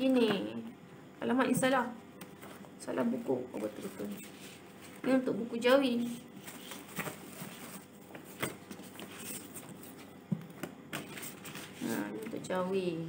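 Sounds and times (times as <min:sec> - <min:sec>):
paper rustling: 0:06.1 - 0:10.1, 0:10.9 - 0:12.1.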